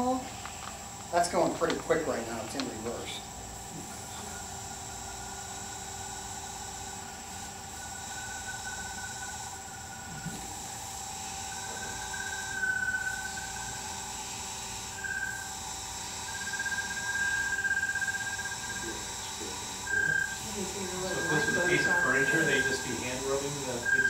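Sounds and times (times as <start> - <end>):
wood lathe motor whine: 0.0 - 24.0
polishing pad squeaking on wood: 19.9 - 24.0.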